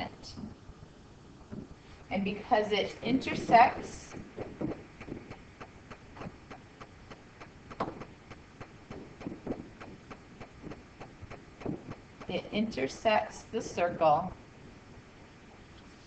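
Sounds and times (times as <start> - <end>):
stylus tapping on screen: 3.3 - 12.4.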